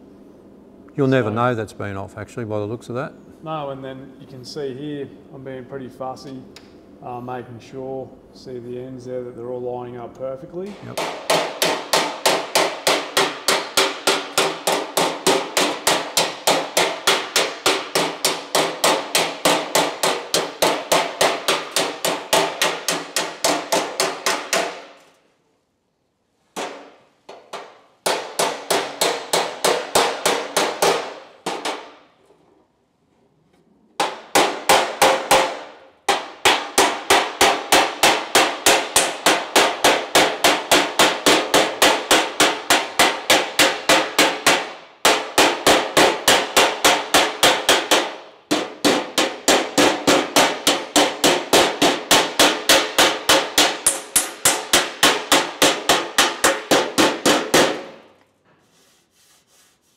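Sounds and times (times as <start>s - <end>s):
hammer striking sheet steel: 10.8s - 25.1s, 26.6s - 32.1s, 34.0s - 58.1s.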